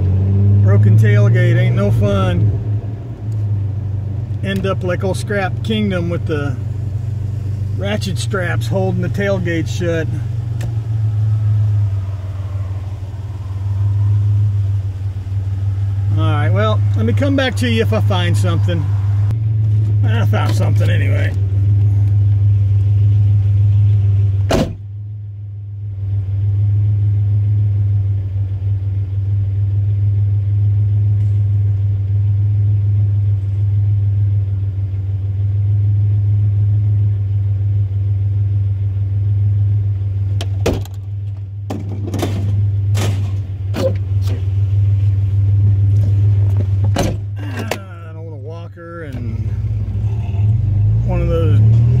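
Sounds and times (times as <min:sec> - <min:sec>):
truck engine idling: 0:03.3 - 0:26.0
knocks and clunks: 0:24.4 - 0:24.9, 0:40.4 - 0:44.4, 0:46.0 - 0:47.9.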